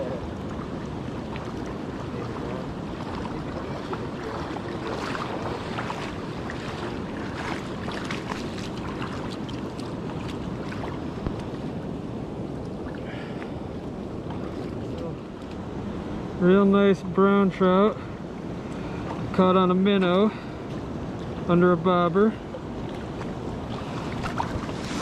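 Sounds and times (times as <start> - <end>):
short splashes and knocks: 0.0 - 11.7, 22.5 - 25.0
river water running over gravel: 0.0 - 13.2, 21.2 - 25.0
wind buffeting microphone: 0.0 - 16.4, 22.3 - 25.0.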